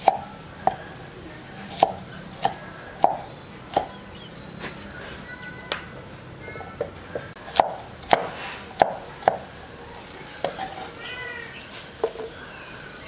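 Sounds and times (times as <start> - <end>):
knife chopping on wooden board: 1.7 - 3.9, 7.5 - 9.4.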